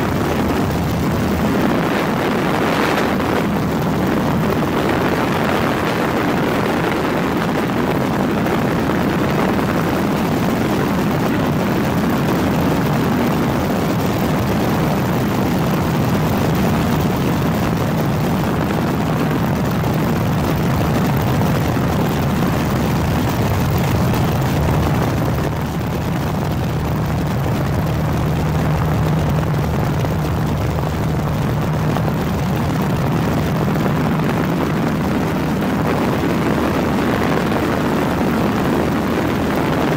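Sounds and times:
engine drone: 0:00.0 - 0:39.9
low hum: 0:00.0 - 0:39.9.

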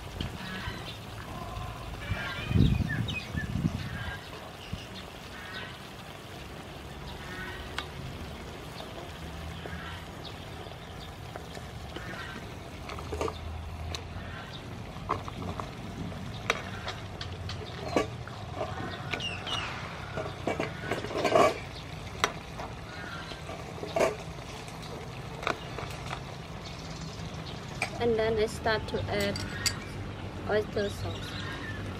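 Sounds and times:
sauce simmering in a pan: 0:00.0 - 0:20.9.

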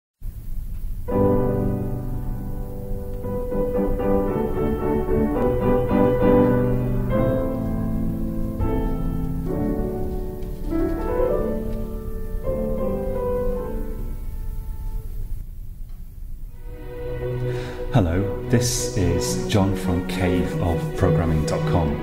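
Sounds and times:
instrumental piano music: 0:00.6 - 0:15.4.

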